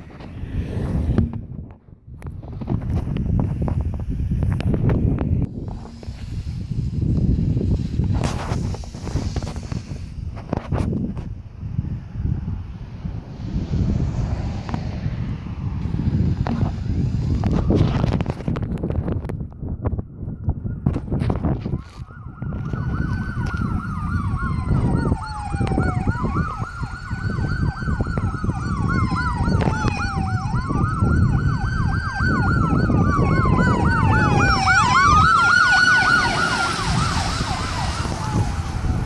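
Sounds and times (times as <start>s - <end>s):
tyre and engine noise: 0.0s - 19.6s, 20.9s - 39.0s
ambulance siren wailing: 20.2s - 39.0s.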